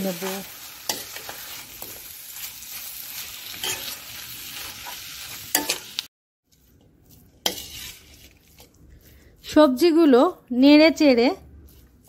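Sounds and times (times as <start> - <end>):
food sizzling in oil: 0.0 - 8.7
spatula scraping a metal pan: 6.5 - 8.7.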